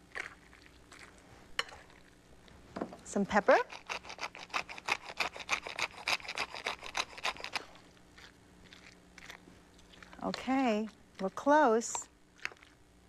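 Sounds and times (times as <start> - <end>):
pepper mill grinding: 3.4 - 9.4.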